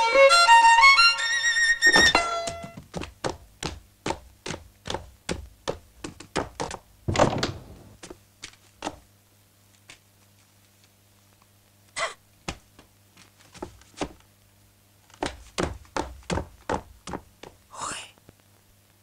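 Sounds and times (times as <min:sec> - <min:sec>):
heavy boots on wooden floor: 0:01.9 - 0:09.1, 0:12.5 - 0:14.2, 0:15.1 - 0:17.7
loud thud: 0:07.1 - 0:08.0.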